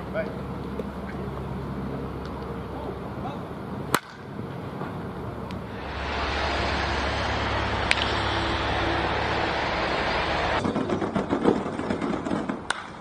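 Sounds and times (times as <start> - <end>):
baseball bat cracking against ball: 3.9 - 4.3, 7.4 - 8.8, 12.6 - 13.0
steady rushing noise: 5.6 - 10.7.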